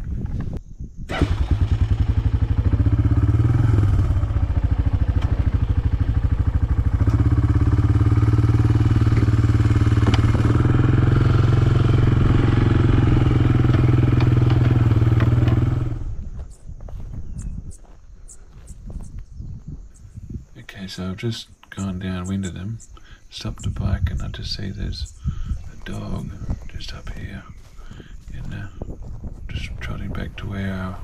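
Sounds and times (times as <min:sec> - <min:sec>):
quad bike engine running: 0:01.1 - 0:16.4.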